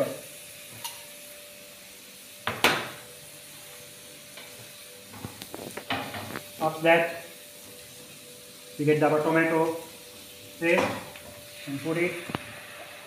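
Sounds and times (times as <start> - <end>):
onion sizzling in frying pan: 0.0 - 13.0.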